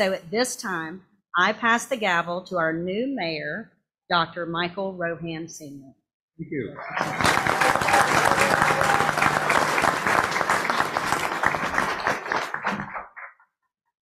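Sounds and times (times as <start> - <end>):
audience applauding: 6.8 - 13.3.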